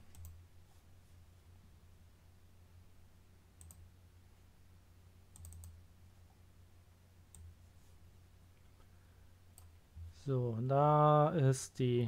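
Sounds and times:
computer mouse clicks: 0:00.0 - 0:00.4, 0:03.6 - 0:03.8, 0:05.3 - 0:05.8
low steady hum: 0:00.0 - 0:12.0.

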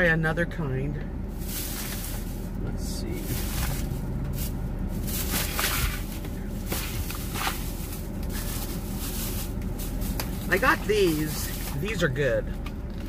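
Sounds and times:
low hum inside car: 0:00.0 - 0:13.0
packaging rustling and crinkling: 0:01.4 - 0:11.9.

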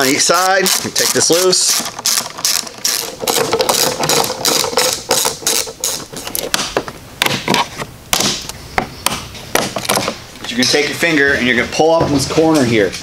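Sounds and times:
ratchet clicking rapidly: 0:00.0 - 0:06.1.

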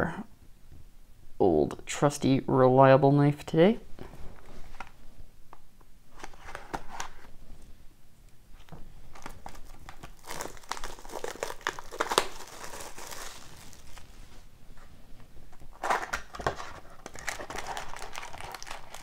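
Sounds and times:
plastic shrink-wrap crinkling and tearing: 0:09.2 - 0:14.2, 0:15.8 - 0:19.0.

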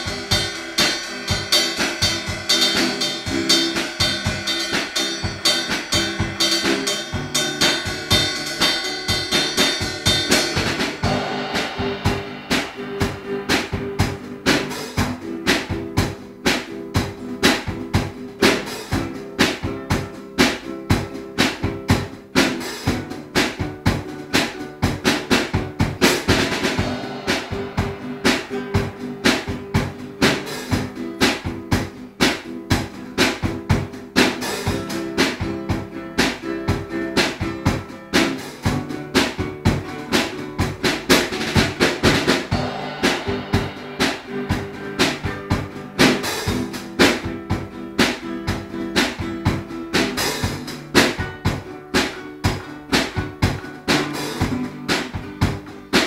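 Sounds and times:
cymbals ringing: 0:00.0 - 0:15.0, 0:26.3 - 0:30.2, 0:42.4 - 0:46.4
drum kit beat: 0:00.0 - 0:56.0
strummed acoustic guitar: 0:00.0 - 0:56.0.

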